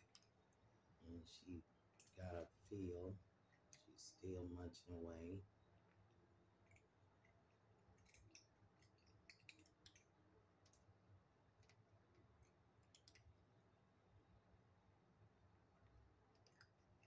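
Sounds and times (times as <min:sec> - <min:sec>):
kittens chewing dry kibble: 0:01.9 - 0:02.2, 0:05.8 - 0:13.4, 0:15.8 - 0:17.0.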